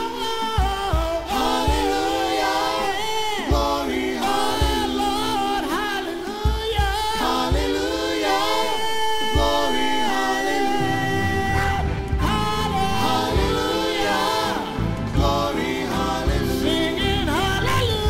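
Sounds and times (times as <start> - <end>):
a cappella group singing: 0.0 - 18.0
low thumps: 11.4 - 18.0.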